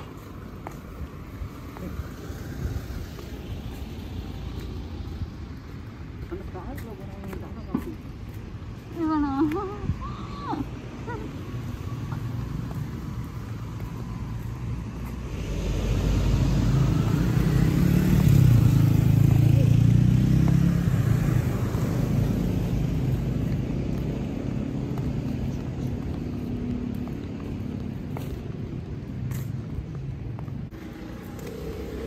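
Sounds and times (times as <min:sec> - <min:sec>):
street traffic noise: 0:00.0 - 0:32.0
vehicle engine passing by: 0:13.0 - 0:32.0.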